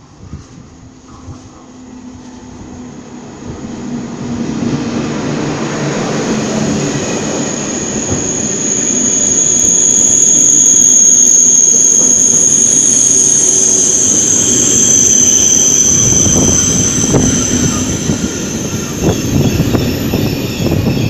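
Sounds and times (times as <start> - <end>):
train wheels rumbling on rails: 0.0 - 21.0
high-pitched brake squeal: 5.9 - 21.0.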